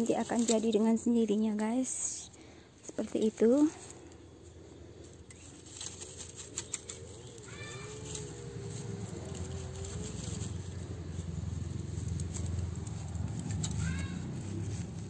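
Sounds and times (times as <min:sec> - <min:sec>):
low rumble: 0:07.3 - 0:15.0.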